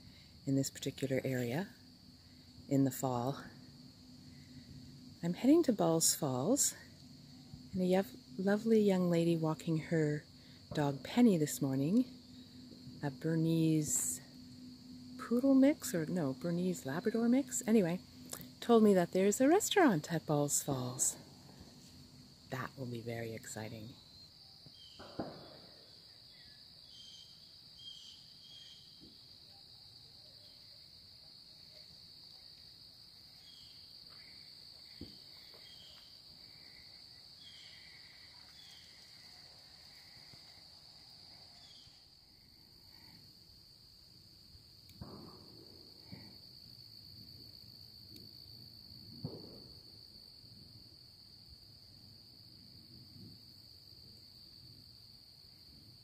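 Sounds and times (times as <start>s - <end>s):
insects trilling: 0.0s - 56.0s
faint chirps: 33.3s - 43.2s.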